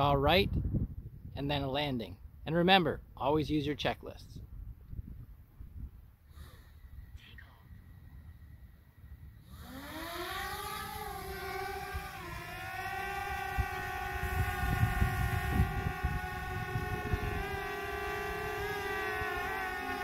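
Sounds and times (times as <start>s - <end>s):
wind buffeting microphone: 0.0s - 2.4s, 4.2s - 6.2s, 10.4s - 20.0s
drone propellers whining and humming: 6.3s - 20.0s.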